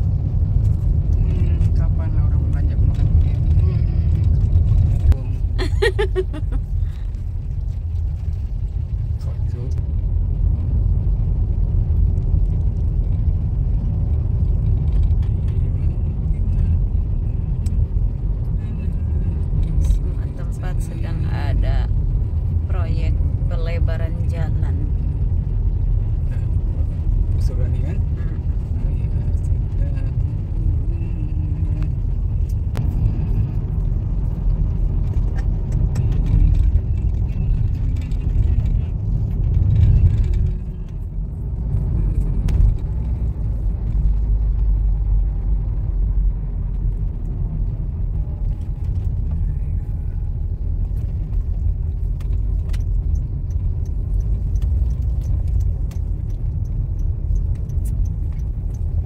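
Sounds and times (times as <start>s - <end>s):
car cabin road rumble: 0.0s - 59.0s.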